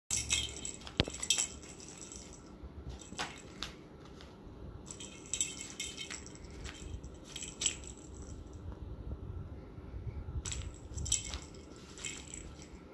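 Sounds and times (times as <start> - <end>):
toy ball bell jingling: 0.1 - 3.5, 4.9 - 8.6, 10.4 - 12.8.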